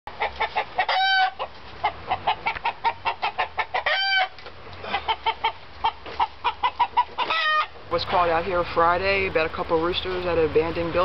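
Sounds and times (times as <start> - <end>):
roosters clucking: 0.1 - 11.0
rooster squawks: 0.2 - 7.8.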